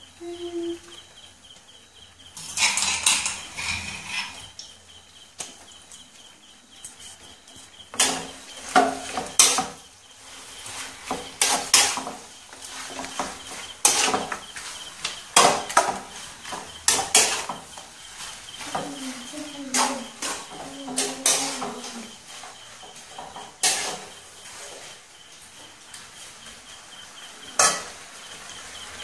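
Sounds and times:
scrapes and knocks against pan: 2.4s - 4.5s, 10.6s - 17.8s, 22.9s - 24.8s
stirring in a non-stick pan: 5.7s - 29.0s.

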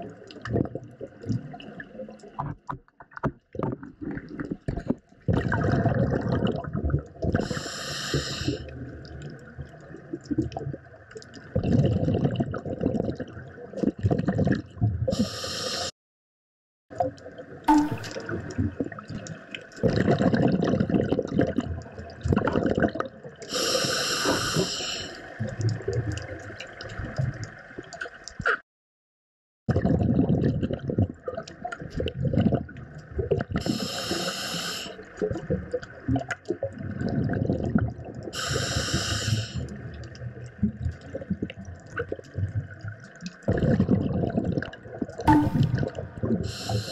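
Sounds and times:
rumbling exhaled bubbles: 0.0s - 2.8s, 3.5s - 7.6s, 8.5s - 15.2s, 17.0s - 23.6s, 29.7s - 33.8s, 35.1s - 38.4s, 39.6s - 46.9s
scuba regulator hiss: 7.4s - 8.6s, 15.2s - 15.9s, 23.5s - 25.2s, 33.6s - 35.0s, 38.4s - 39.6s, 46.5s - 46.9s.

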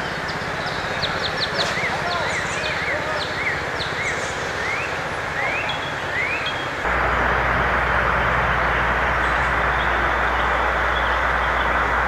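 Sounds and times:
birds chirping: 0.0s - 12.0s
lawn mower engine running: 6.8s - 12.0s.

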